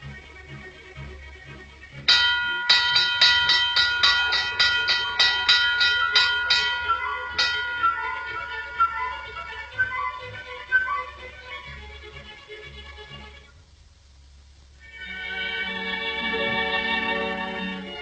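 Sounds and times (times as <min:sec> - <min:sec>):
bell struck rapidly: 0:02.1 - 0:10.5.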